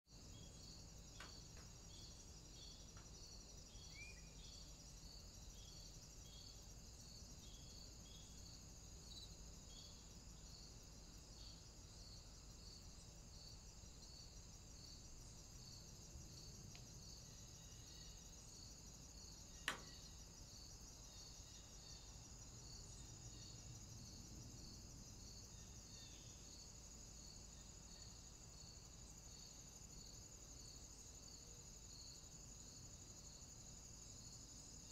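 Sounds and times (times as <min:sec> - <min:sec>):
insect chirping: 0:00.1 - 0:34.9
sharp click: 0:19.6 - 0:19.9.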